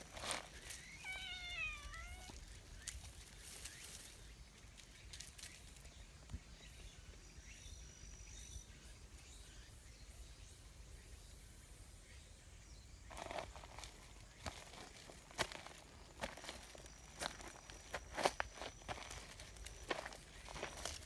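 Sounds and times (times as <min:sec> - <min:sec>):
cat meowing: 0:00.9 - 0:02.4.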